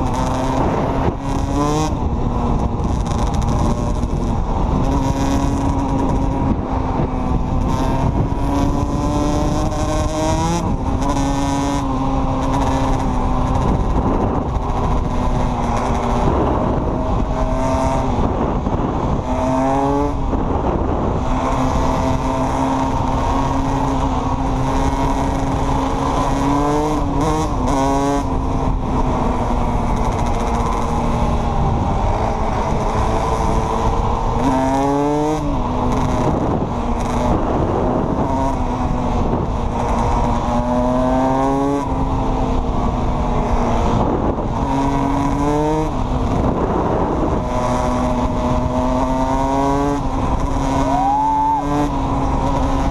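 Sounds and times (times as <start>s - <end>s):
quad engine revving: 0.0s - 52.9s
rushing wind: 0.0s - 52.9s
tyre noise: 46.4s - 52.9s.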